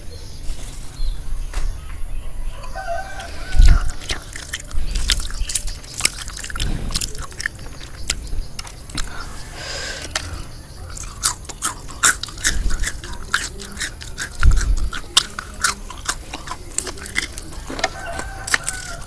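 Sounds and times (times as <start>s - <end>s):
rooster crowing: 2.5s - 4.0s, 17.5s - 19.0s
chewing: 2.6s - 9.4s, 10.0s - 19.0s
crispy fried food crackling: 2.7s - 9.4s, 10.0s - 19.0s.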